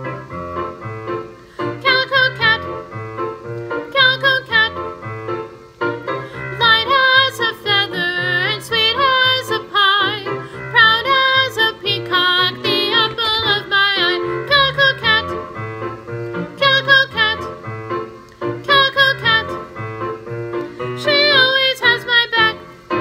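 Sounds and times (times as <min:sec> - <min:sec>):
instrumental accompaniment: 0:00.0 - 0:23.0
voices singing children's song: 0:01.7 - 0:02.9, 0:03.8 - 0:04.9, 0:06.3 - 0:15.6, 0:16.4 - 0:17.6, 0:18.6 - 0:19.7, 0:20.6 - 0:23.0.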